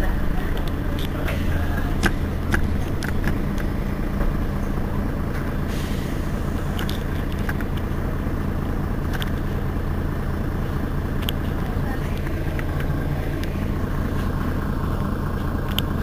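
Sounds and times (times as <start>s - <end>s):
bus engine drone: 0.0s - 16.0s.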